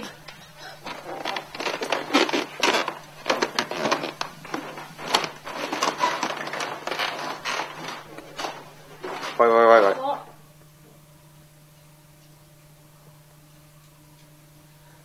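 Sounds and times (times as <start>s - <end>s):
footsteps climbing stairs: 0.0s - 9.8s
clothing rustle: 0.8s - 9.5s.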